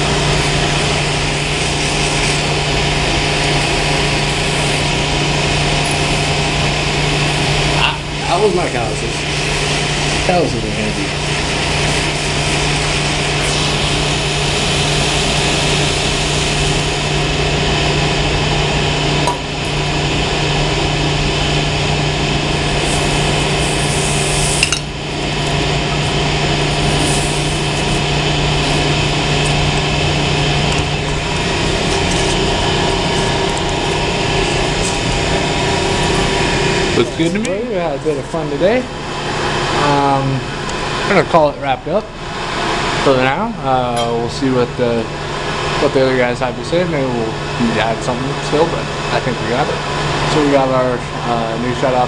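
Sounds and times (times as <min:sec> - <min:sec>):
hand torch hissing: 0:00.0 - 0:17.3, 0:22.4 - 0:37.4
low hum: 0:00.0 - 0:46.7
boiler-room machinery running: 0:00.0 - 0:52.0.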